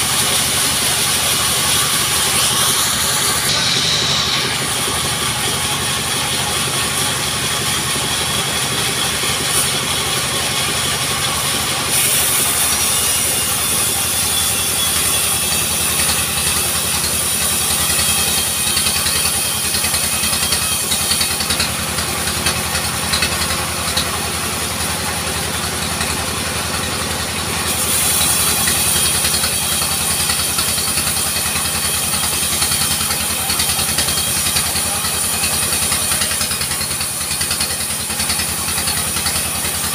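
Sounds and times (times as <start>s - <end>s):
saw blade hissing through wood: 0.0s - 39.9s
sawmill machine drone: 0.0s - 39.9s.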